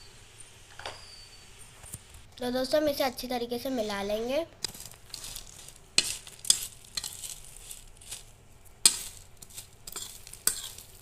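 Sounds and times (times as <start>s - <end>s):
crisp rustling of dry snack: 4.6s - 11.0s.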